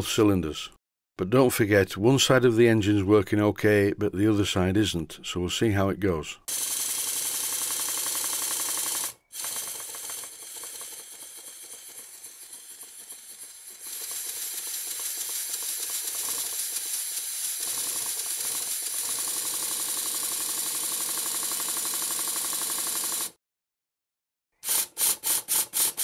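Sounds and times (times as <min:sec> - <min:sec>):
model steam engine ticking: 0:06.5 - 0:23.3.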